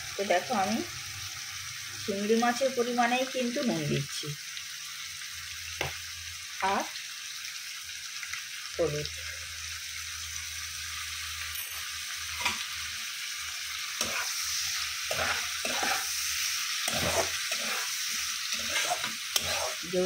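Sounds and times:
prawns and onions sizzling in oil: 0.0s - 20.0s
metal spatula scraping and stirring: 14.0s - 20.0s.

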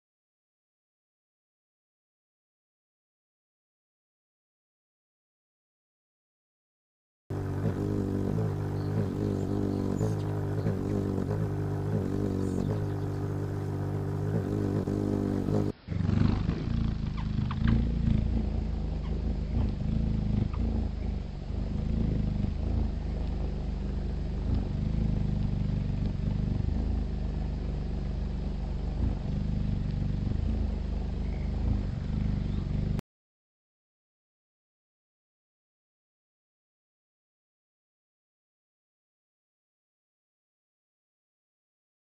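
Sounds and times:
hummingbird wings humming: 7.3s - 33.0s.

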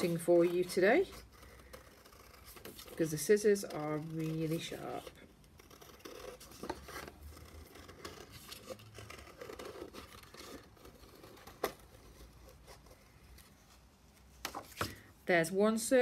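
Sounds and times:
card rustling: 6.0s - 15.1s.

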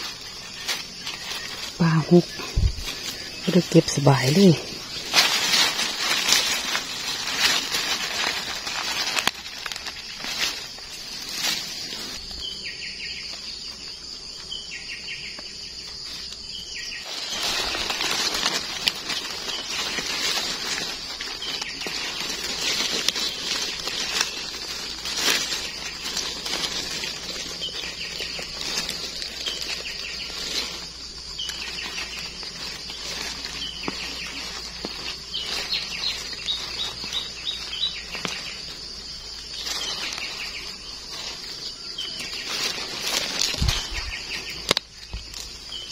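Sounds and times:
leaves and twigs rustling: 0.0s - 45.9s
bird chirps: 12.2s - 45.9s.

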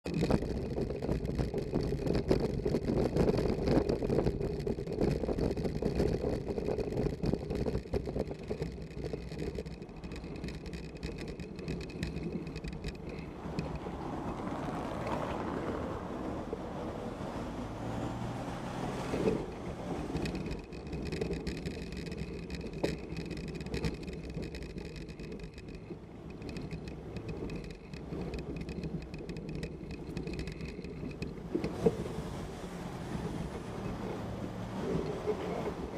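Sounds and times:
camera mount rattling on cobbles: 0.1s - 14.4s, 19.1s - 32.1s
passing motor vehicle: 12.6s - 22.2s, 25.9s - 35.9s.

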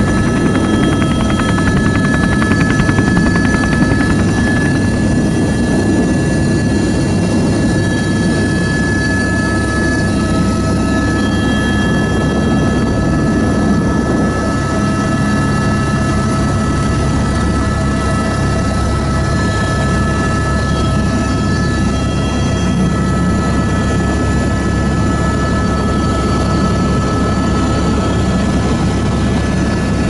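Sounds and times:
high turbine whine: 0.0s - 15.4s
helicopter rotor and engine: 0.0s - 30.0s.

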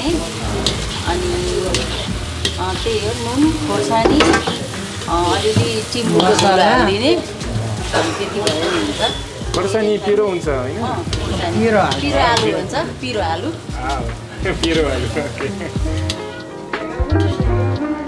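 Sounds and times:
potatoes sizzling in a pan: 0.0s - 16.7s
woman talking: 1.0s - 2.0s, 2.6s - 7.3s, 7.9s - 9.2s.

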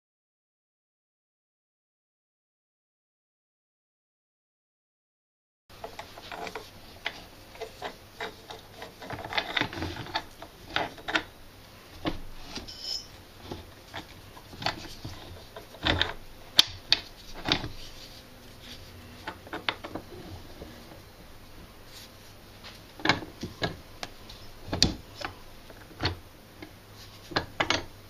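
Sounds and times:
metal parts clinking and knocking: 12.1s - 13.2s.

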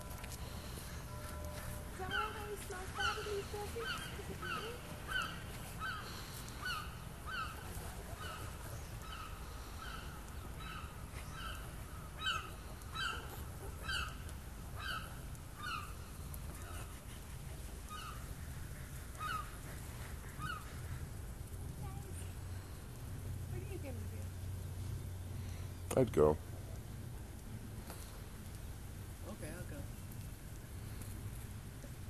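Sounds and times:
otters chirping: 0.3s - 17.0s.

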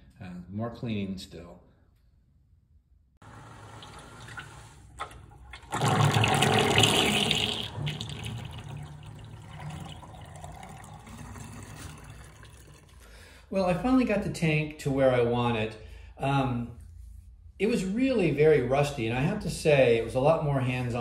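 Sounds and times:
hose water splashing into basin: 3.2s - 13.1s.

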